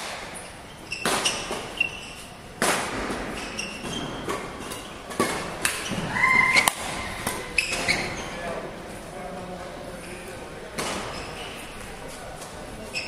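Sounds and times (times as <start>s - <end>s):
rackets hitting shuttlecock: 0.0s - 8.1s
shoes squeaking on court floor: 0.3s - 2.5s, 3.2s - 8.6s, 10.0s - 13.0s.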